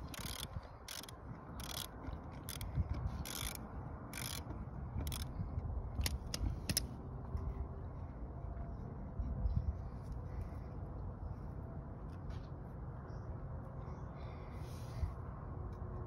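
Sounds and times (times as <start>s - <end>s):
socket ratchet clicking: 0.0s - 5.3s, 6.0s - 6.9s.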